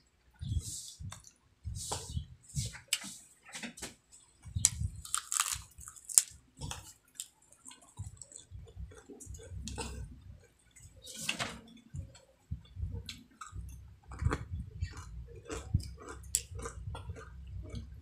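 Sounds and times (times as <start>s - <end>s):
dull chewing: 4.4s - 18.0s
crunching fried chicken skin: 4.6s - 9.2s.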